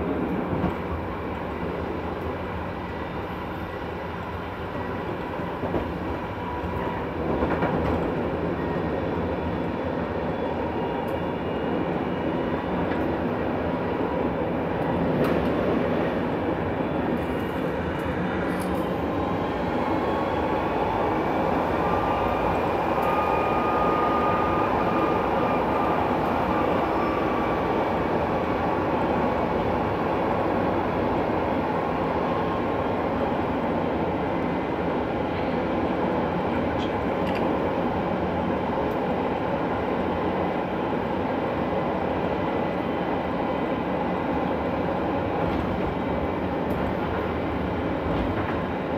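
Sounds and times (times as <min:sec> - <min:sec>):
tram wheels rumbling on rails: 0:00.0 - 0:48.9
high whine: 0:18.8 - 0:30.2.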